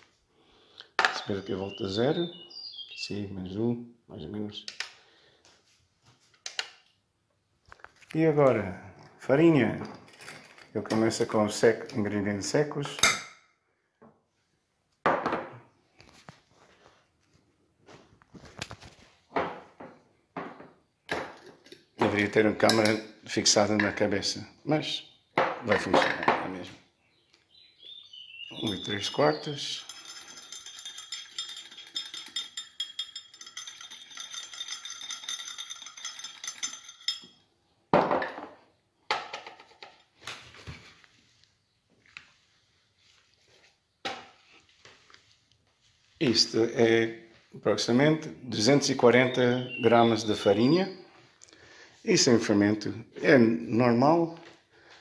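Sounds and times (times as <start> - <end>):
kitchen utensils rattling and clinking: 9.8 - 11.3, 28.5 - 37.4
knocking and rustling on counter: 15.0 - 15.6, 18.9 - 21.5, 37.9 - 39.9.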